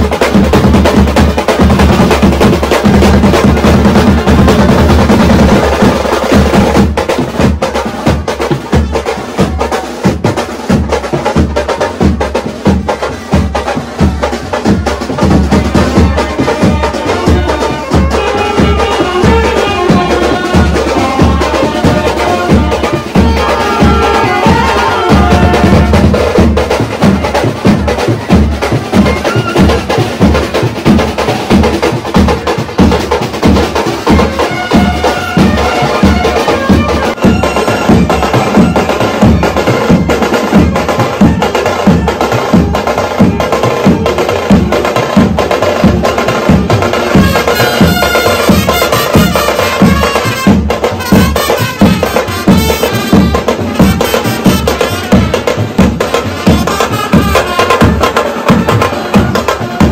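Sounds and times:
brass band playing: 0.0s - 59.9s
driving drum beat: 0.0s - 59.9s
clarinet and trumpets: 13.0s - 31.8s, 33.7s - 59.9s.

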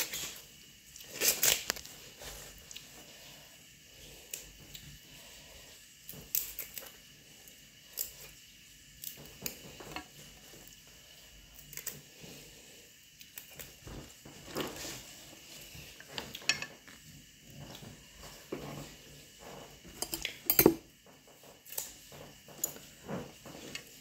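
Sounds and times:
utensils and dishes clicking: 19.9s - 20.8s.

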